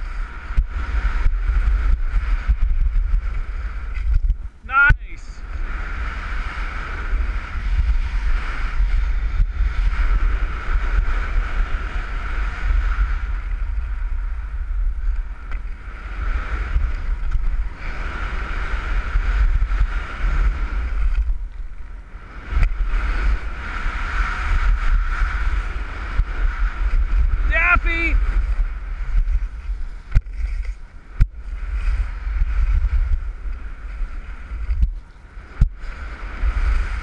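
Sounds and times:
wind buffeting microphone: 0:00.0 - 0:37.0
skis scraping on packed snow: 0:28.2 - 0:37.0.

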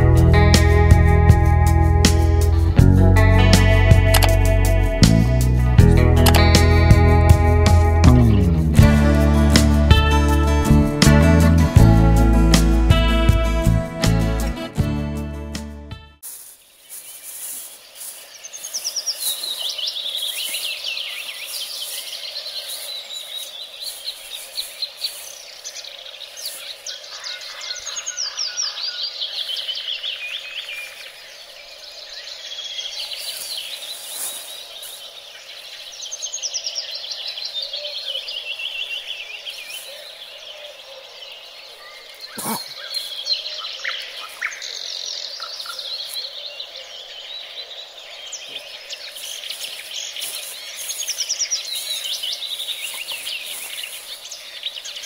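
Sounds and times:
songbirds singing: 0:00.0 - 0:13.8, 0:16.3 - 0:55.0.

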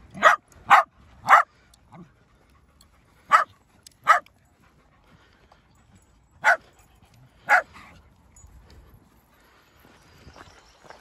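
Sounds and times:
dog barking: 0:00.2 - 0:01.5, 0:03.3 - 0:04.3, 0:06.4 - 0:06.6, 0:07.4 - 0:07.7.

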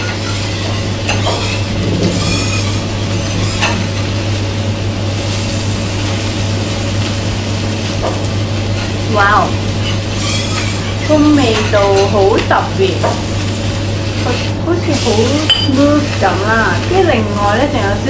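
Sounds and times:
pork sizzling on a griddle: 0:00.0 - 0:18.0.

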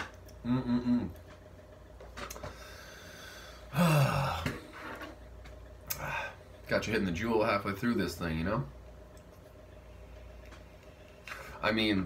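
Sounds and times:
man humming: 0:00.0 - 0:01.4, 0:03.7 - 0:04.7.

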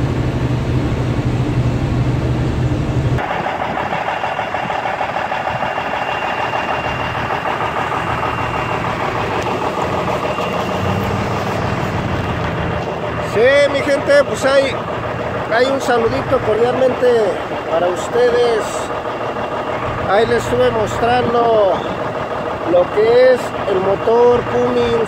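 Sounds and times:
diesel engine idling: 0:00.0 - 0:25.0
truck engine droning in cab: 0:00.0 - 0:25.0.

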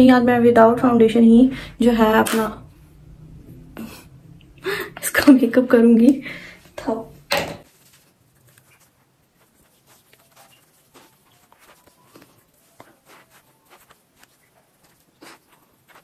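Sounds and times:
fingers patting skin: 0:08.5 - 0:16.0.

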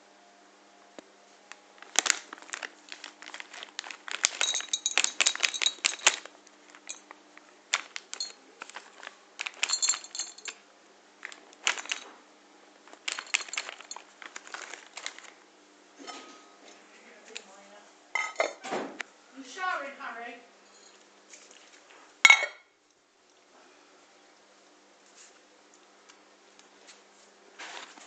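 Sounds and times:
foil bag crinkling: 0:01.5 - 0:10.6, 0:11.2 - 0:12.2, 0:12.8 - 0:15.4, 0:27.5 - 0:28.0
dry treats clattering into bowl: 0:01.8 - 0:10.6, 0:11.2 - 0:12.1, 0:12.8 - 0:15.3.

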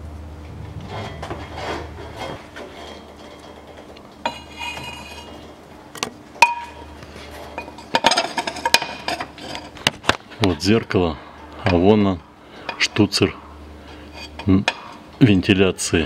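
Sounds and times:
rummaging through tools: 0:00.8 - 0:05.5, 0:06.4 - 0:10.5.

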